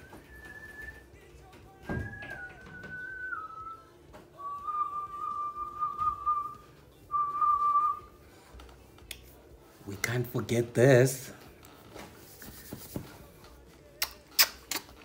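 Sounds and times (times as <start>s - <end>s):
person whistling a slow tune: 0.0s - 1.2s, 1.9s - 8.2s.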